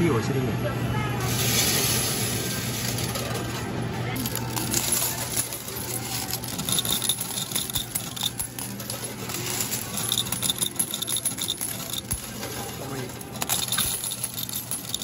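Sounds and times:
metal medals clinking: 1.3s - 15.0s.

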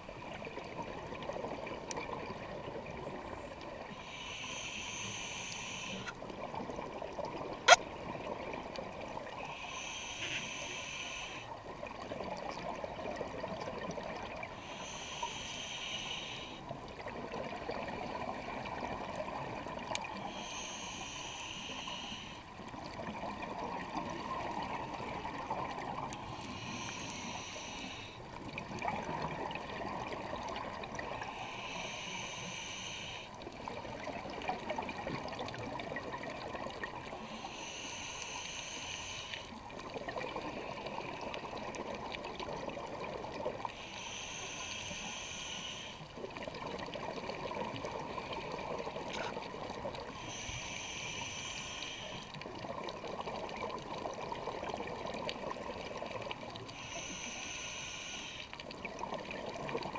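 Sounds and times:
regulator breathing hiss: 3.9s - 6.1s, 9.4s - 11.5s, 14.5s - 16.6s, 20.2s - 22.5s, 26.2s - 28.2s, 31.1s - 33.4s, 37.2s - 39.6s, 43.7s - 46.1s, 50.1s - 52.4s, 56.7s - 58.6s.

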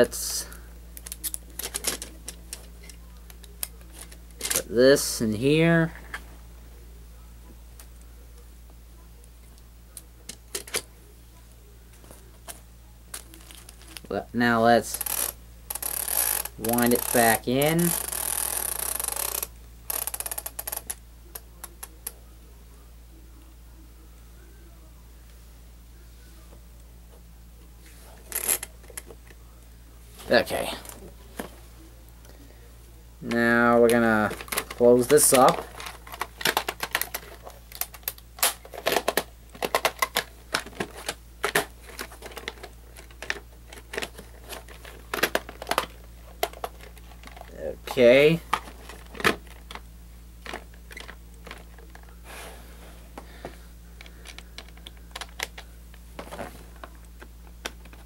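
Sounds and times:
cassette reel ratcheting clicks: 14.9s - 21.0s.

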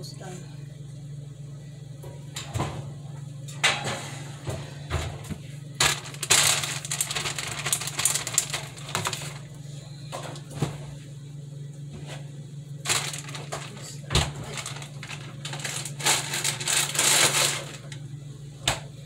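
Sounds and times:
crackly rustling: 5.8s - 9.6s, 12.8s - 18.1s.

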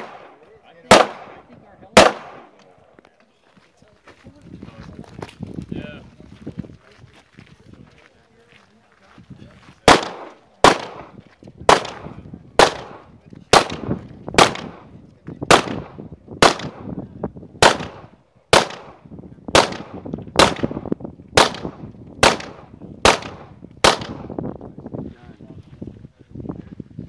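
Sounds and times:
pistol shots with echo: 0.0s - 2.6s, 9.8s - 17.0s, 17.6s - 24.4s.

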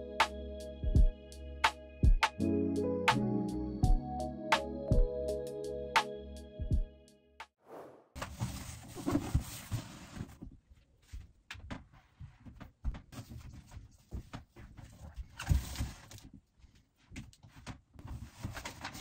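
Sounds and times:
cardboard rustling and scraping: 8.2s - 10.5s, 13.1s - 16.4s, 17.1s - 19.0s.

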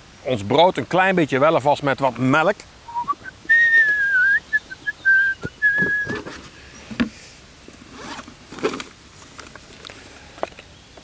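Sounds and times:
person whistling notes: 2.9s - 6.2s
plastic cool box rummaging: 7.8s - 10.6s.

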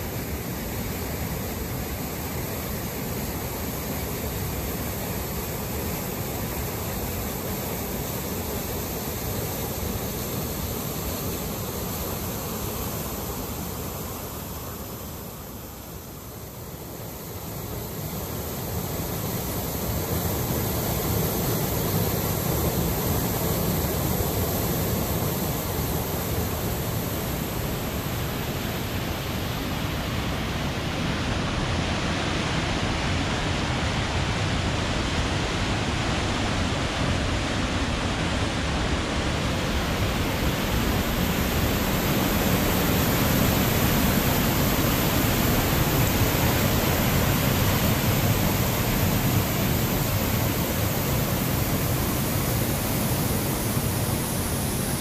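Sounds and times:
whitewater rushing through gorge: 0.0s - 55.0s.

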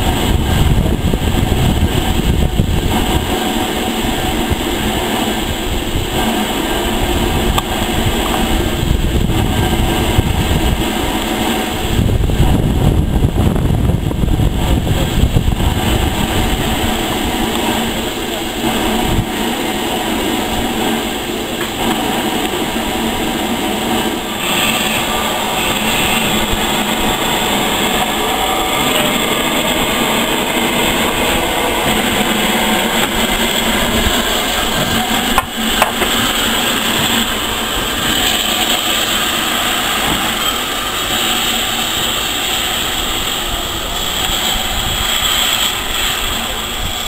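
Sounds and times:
steam locomotive rushing steam: 0.0s - 47.0s.

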